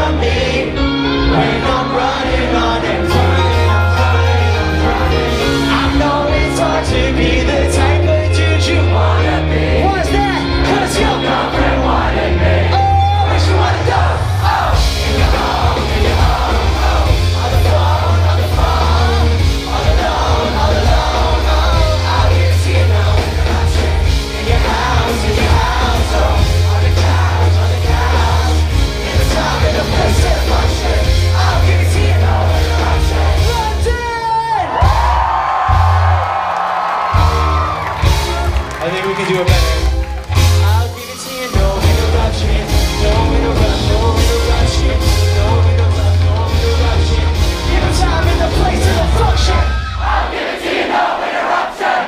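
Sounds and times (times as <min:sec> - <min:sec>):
live band playing hip-hop: 0:00.0 - 0:50.4
crowd yelling along: 0:00.0 - 0:52.0.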